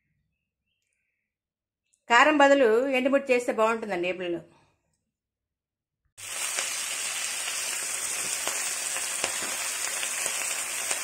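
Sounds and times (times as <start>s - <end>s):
oil sizzling in a pan: 6.2s - 11.0s.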